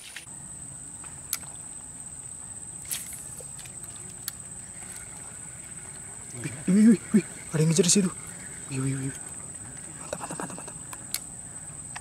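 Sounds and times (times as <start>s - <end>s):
high-pitched insect drone: 0.0s - 12.0s
sharp clicks: 1.3s - 1.6s, 10.9s - 11.3s.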